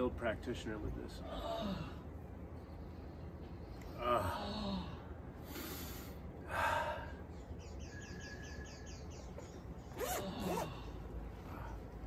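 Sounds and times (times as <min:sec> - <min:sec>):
zipper being pulled open: 0:09.9 - 0:10.8.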